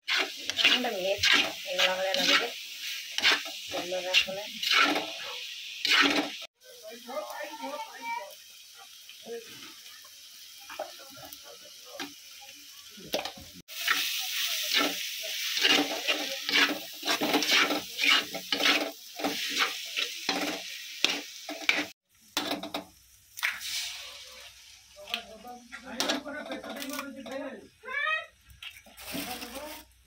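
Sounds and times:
spatula scraping wok: 0.0s - 6.5s, 13.6s - 24.8s, 25.6s - 27.4s, 28.6s - 30.0s
vegetables sizzling: 0.0s - 30.0s.

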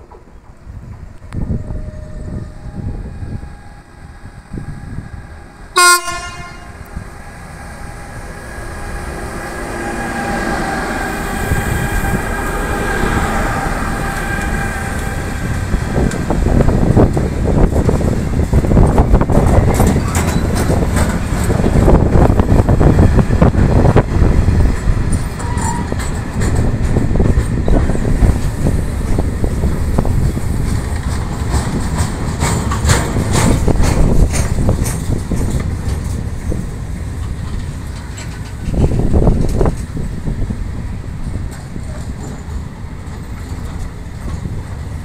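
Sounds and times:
freight train rumble: 0.0s - 45.0s
wind buffeting microphone: 0.0s - 45.0s
wheel clicks over rail joints: 30.6s - 36.3s.

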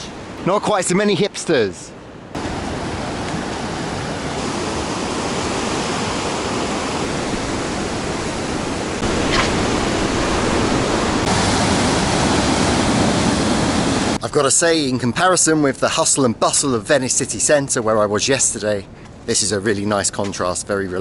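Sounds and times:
surf breaking on rocks: 2.4s - 14.2s.

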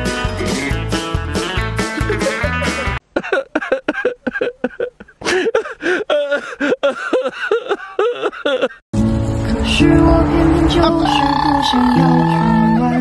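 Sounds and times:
guitar music: 0.0s - 3.0s, 9.0s - 13.0s
person making wordless vocal sounds: 10.2s - 13.0s.

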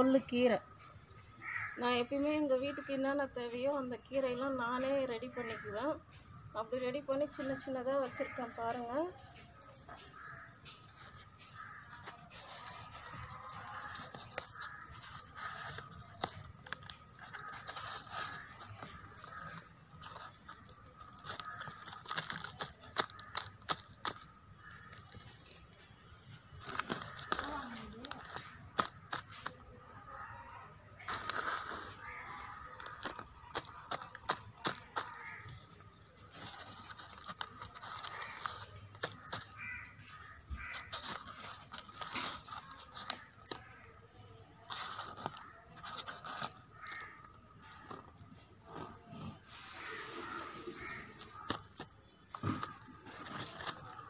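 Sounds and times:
bird calls: 0.0s - 54.0s
greens being picked crackling: 10.2s - 54.0s
leaves rustling: 11.4s - 29.6s, 31.0s - 43.9s
stems snapping: 12.8s - 29.6s.

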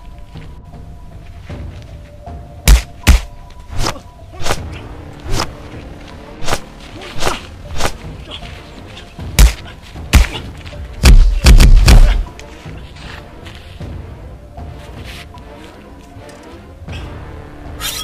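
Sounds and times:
background music: 0.0s - 18.0s
punch and kick thuds: 2.7s - 3.3s, 9.3s - 10.4s, 11.0s - 12.3s
swishes: 2.7s - 5.7s, 6.4s - 8.1s.

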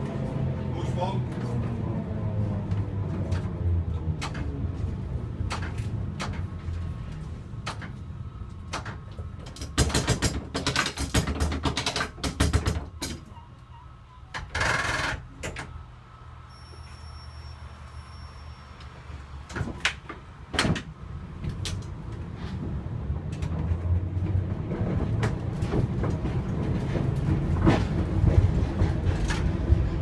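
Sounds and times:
tram motor whine: 0.0s - 9.4s, 12.8s - 30.0s
wheels clicking over rail joints: 3.2s - 13.4s, 18.8s - 30.0s.

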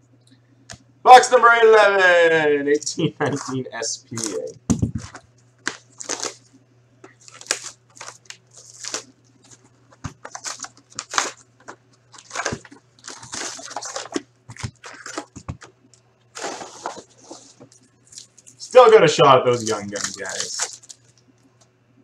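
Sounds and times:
foil packs rustling: 3.2s - 6.5s, 7.1s - 21.2s
shrink-wrap crinkling and tearing: 3.3s - 6.5s, 7.1s - 21.3s
cardboard box opened: 10.1s - 15.4s, 16.4s - 17.7s.

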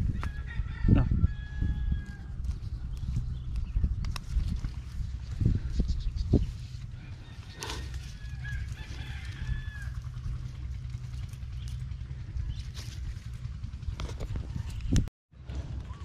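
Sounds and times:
steady low rumble: 0.0s - 16.0s
rooster crowing: 0.1s - 2.4s, 6.9s - 10.4s.

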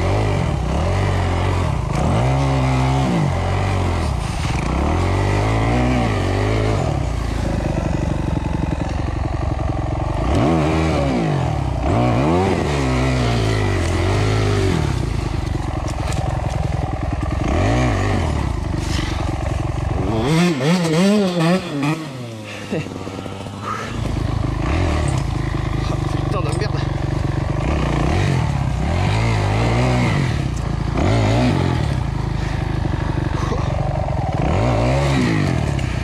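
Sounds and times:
motorcycle clatter: 0.0s - 36.0s
motorcycle engine revving: 0.0s - 36.0s.

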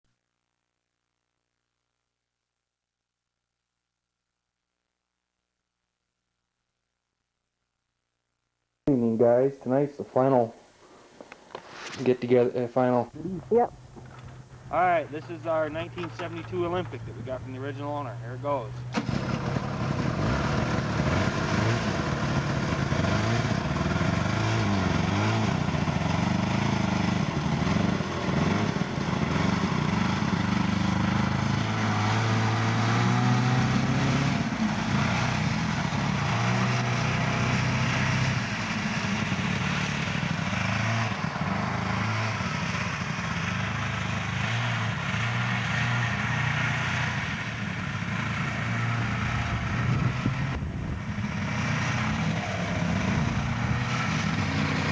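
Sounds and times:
snowmobile engine running: 12.2s - 54.9s.

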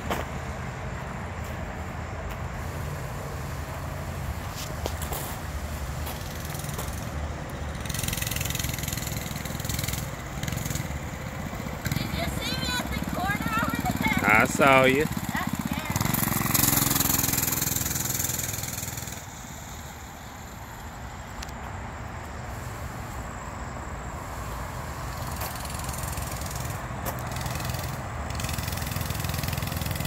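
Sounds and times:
mini bike engine running: 2.8s - 20.9s, 24.4s - 30.0s.

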